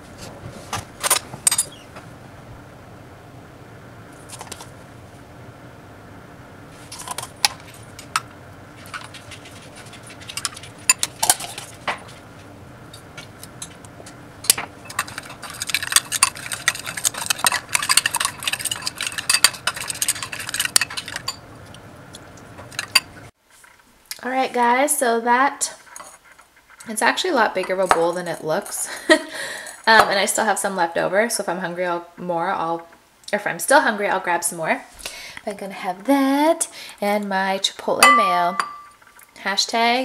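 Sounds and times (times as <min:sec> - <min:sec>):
metal spoon clinking against glass bowl: 0:14.9 - 0:21.4, 0:22.8 - 0:23.1, 0:38.0 - 0:39.0.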